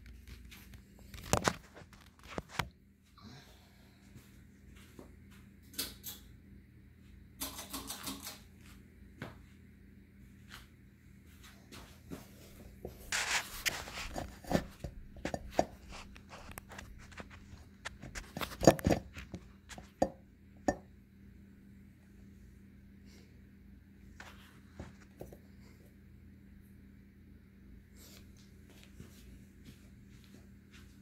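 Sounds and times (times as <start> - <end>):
ceiling fan humming: 0.0 - 31.0.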